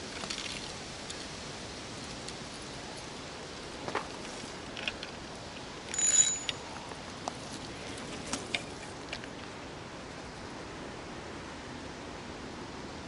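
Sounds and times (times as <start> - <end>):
fishing reel clicks and whirr: 5.9 - 6.6.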